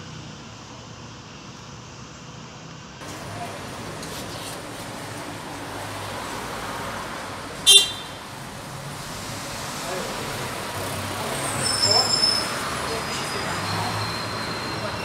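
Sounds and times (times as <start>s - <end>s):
street sound: 0.0s - 15.0s
tram running noise: 0.0s - 15.0s
tram bell ringing: 3.0s - 15.0s.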